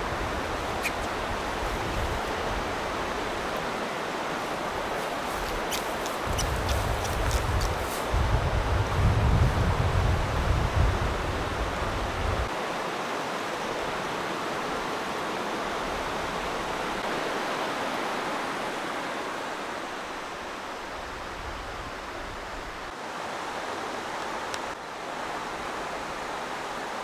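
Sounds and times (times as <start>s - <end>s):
creek flowing: 0.0s - 8.3s, 11.2s - 27.0s
wind rumble on microphone: 4.8s - 12.5s.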